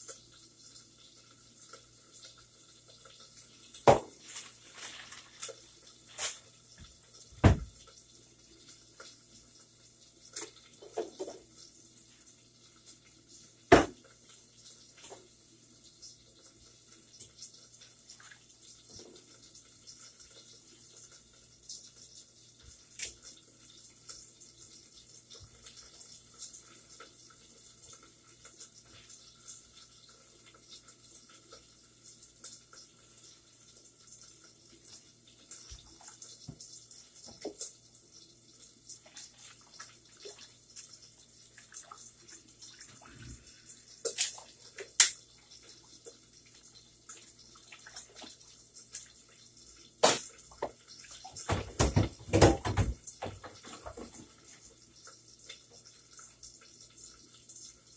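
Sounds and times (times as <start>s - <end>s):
water running from a tap: 0.0s - 57.9s
dishes clinking and clattering: 50.0s - 54.3s.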